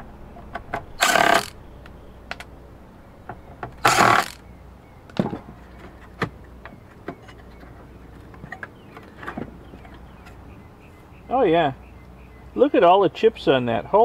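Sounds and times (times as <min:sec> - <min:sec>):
cordless screw gun running: 0:01.0 - 0:01.6, 0:03.8 - 0:04.4.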